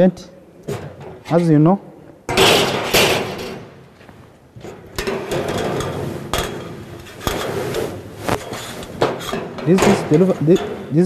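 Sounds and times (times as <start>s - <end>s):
metal scraping: 4.7s - 11.0s.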